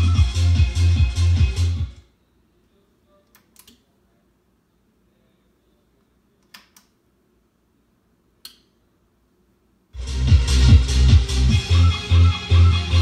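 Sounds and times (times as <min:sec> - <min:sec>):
amplifier switches clicking: 0:08.4 - 0:08.7.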